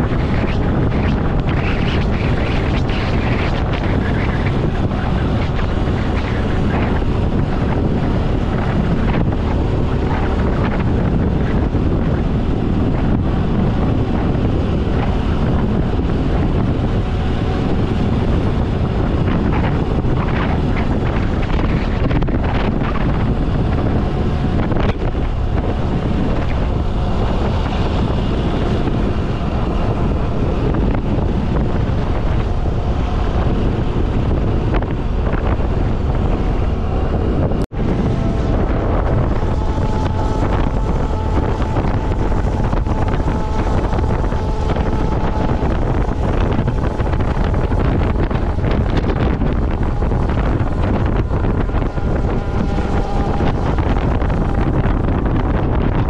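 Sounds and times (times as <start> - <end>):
motorcycle engine running: 0.0 - 56.0
wind buffeting microphone: 0.0 - 56.0.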